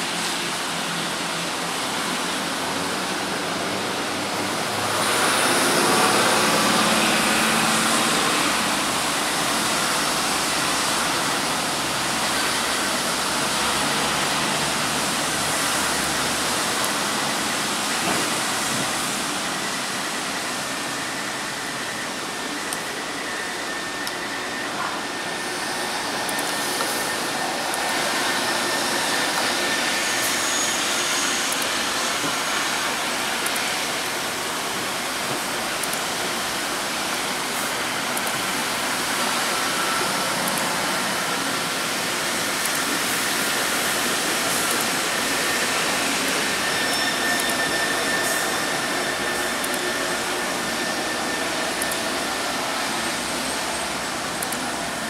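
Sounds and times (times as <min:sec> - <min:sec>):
metro train passing: 0:00.0 - 0:55.0.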